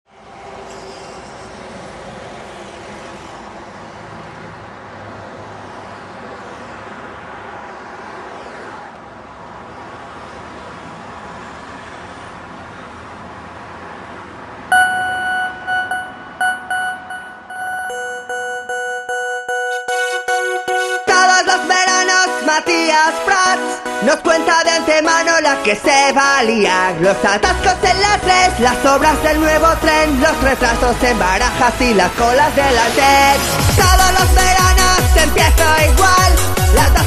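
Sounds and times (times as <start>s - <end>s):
traffic hum: 0.1s - 19.6s, 20.2s - 37.0s
car horns honking: 14.7s - 22.3s.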